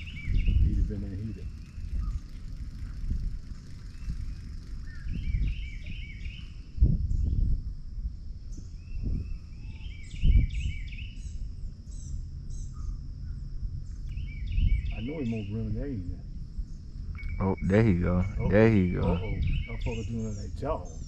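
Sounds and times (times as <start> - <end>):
songbird chirping: 0.0 - 7.6, 8.5 - 21.0
high insect drone: 0.0 - 21.0
low rumbling thumps: 11.5 - 21.0.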